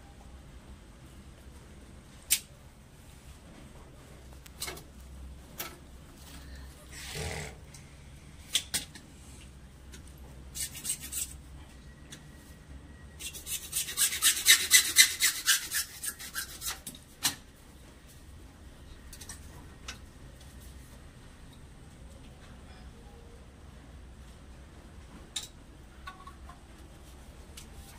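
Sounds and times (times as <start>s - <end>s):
tool rasping on plastic pipe: 13.2s - 16.9s.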